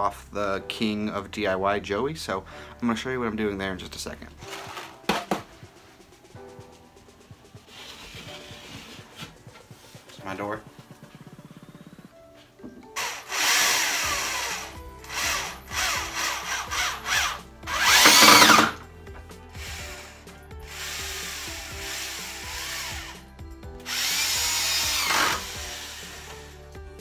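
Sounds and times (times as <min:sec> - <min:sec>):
power drill driving screws: 0:13.0 - 0:18.8, 0:19.6 - 0:23.2, 0:23.8 - 0:26.6.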